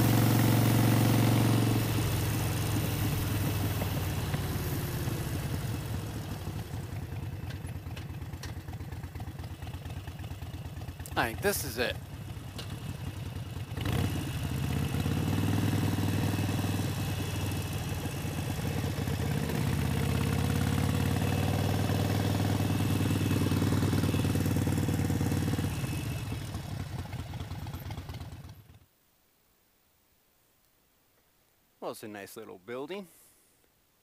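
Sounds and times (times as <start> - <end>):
motorcycle engine low beat: 0.0 - 19.2.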